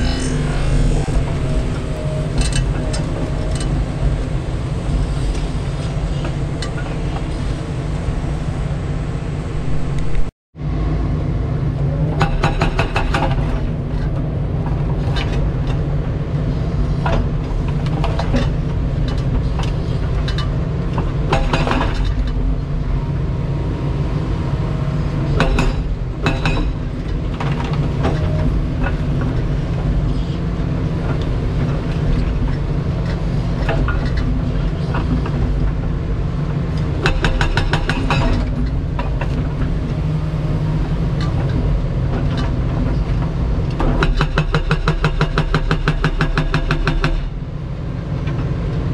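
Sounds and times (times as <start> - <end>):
excavator diesel engine running: 0.0 - 48.9
hydraulic hammer breaking concrete: 43.8 - 47.3.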